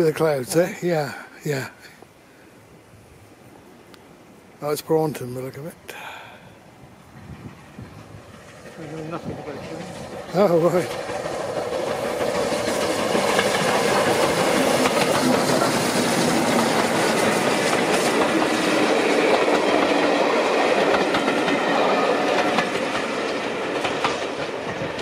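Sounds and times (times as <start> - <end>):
steam locomotive passing: 0.0 - 25.0
wheels clicking over rail joints: 8.3 - 25.0.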